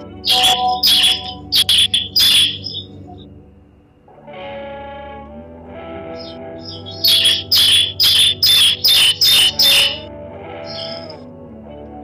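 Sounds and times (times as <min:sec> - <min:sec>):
bird giving rasping calls: 0:00.2 - 0:03.0, 0:06.2 - 0:10.0, 0:10.7 - 0:11.2.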